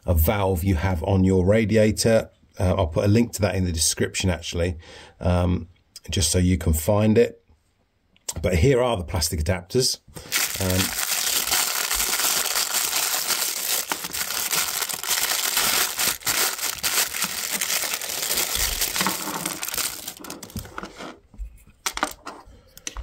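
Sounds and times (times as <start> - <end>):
plastic bag crinkling: 10.2 - 20.8.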